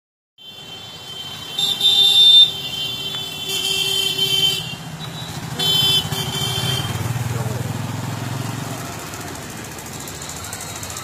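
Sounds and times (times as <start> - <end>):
motorcycle horn blasts: 0.4 - 7.1
motorcycle engines running: 4.2 - 11.0.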